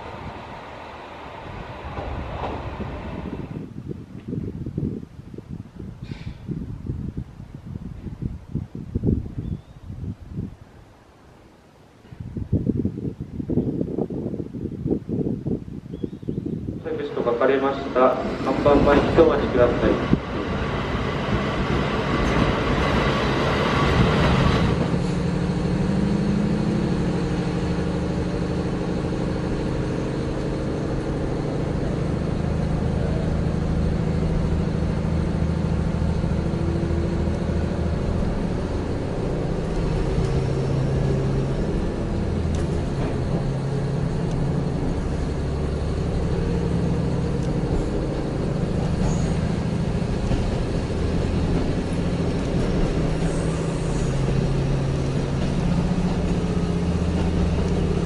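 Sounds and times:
train diesel engine drone: 0.0 - 4.8, 16.6 - 58.0
train brakes hissing: 53.0 - 55.9.

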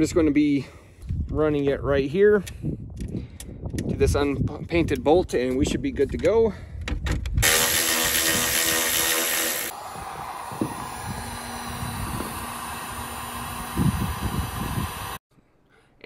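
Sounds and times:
heat gun blowing: 7.4 - 15.2
power tool whirring: 7.4 - 15.2.

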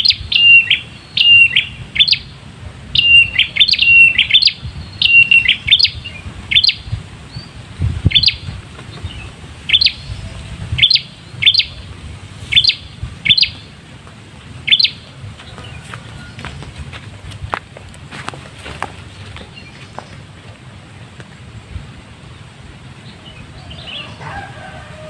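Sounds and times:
bird chirping: 0.0 - 13.8, 14.6 - 17.2, 18.7 - 20.4, 23.0 - 24.4.

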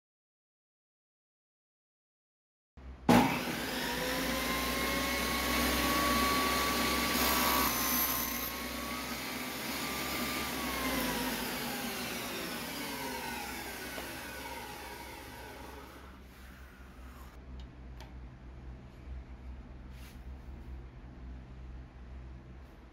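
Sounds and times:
table saw running: 3.1 - 17.4
saw blade winding down: 3.3 - 17.4
saw ripping wood: 5.6 - 16.1.

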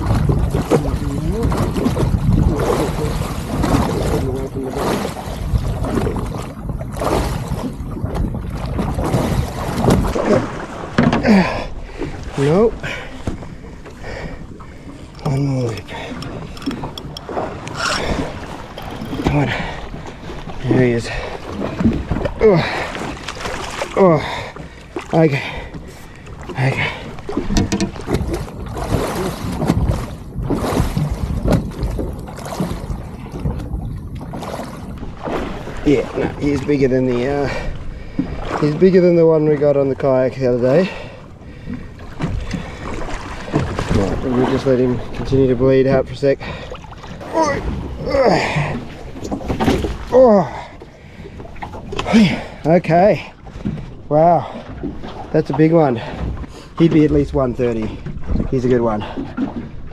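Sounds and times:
water splashing beside boat: 0.0 - 59.9
sharp knocks on boat: 8.1 - 11.3, 27.4 - 28.5, 49.2 - 50.1.

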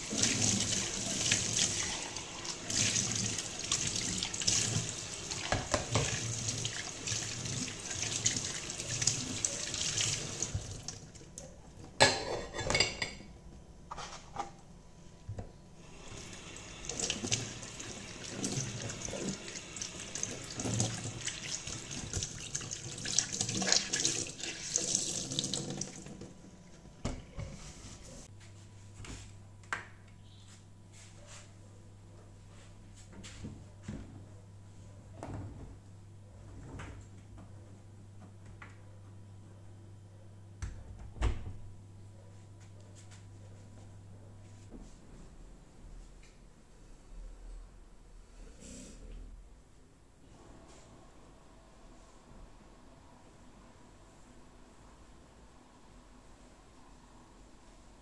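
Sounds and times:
tap running into sink: 5.4 - 6.2
dishes clinking and knocking: 11.9 - 13.3.

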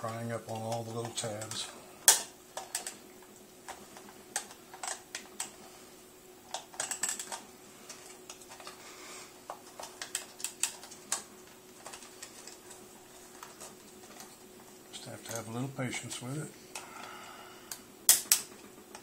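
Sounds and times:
sharp plastic clicks: 17.7 - 19.0.

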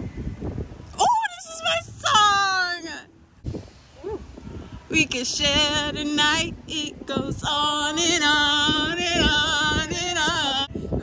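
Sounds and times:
woman singing with vibrato: 1.0 - 3.1, 4.8 - 11.0.

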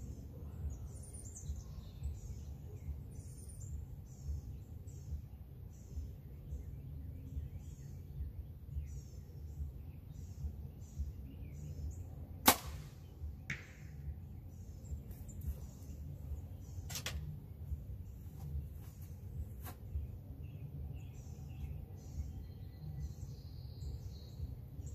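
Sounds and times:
birds chirping: 0.0 - 24.9
bow string crack: 12.4 - 14.1, 16.8 - 17.3.

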